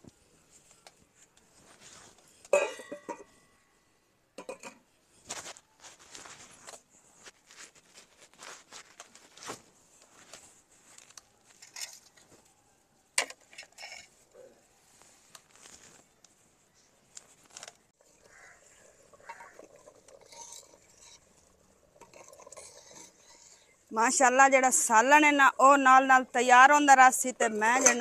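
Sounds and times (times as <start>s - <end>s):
clinks and knocks on clay pot: 2.5s - 3.5s, 4.4s - 4.8s, 27.7s - 28.0s.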